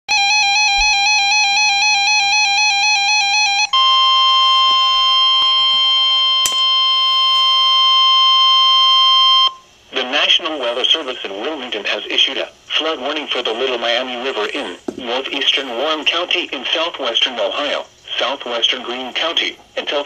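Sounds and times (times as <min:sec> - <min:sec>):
warbling electronic alarm: 0:00.1 - 0:09.7.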